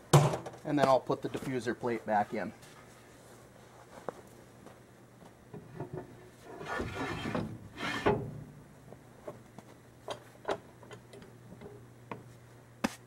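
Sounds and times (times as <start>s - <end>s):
metal plate scraping: 6.4s - 8.4s.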